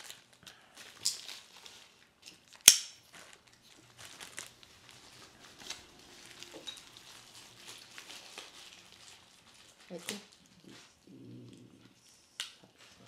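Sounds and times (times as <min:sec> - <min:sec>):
packaging rustling and crinkling: 0:00.0 - 0:11.1
sharp loud snap: 0:02.7 - 0:03.0.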